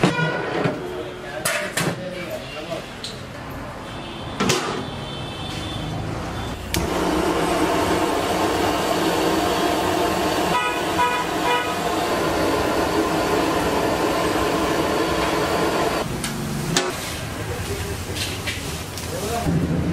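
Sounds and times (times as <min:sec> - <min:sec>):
vehicle horn toots: 0:00.0 - 0:01.0, 0:10.4 - 0:12.0
street traffic noise: 0:00.0 - 0:19.9.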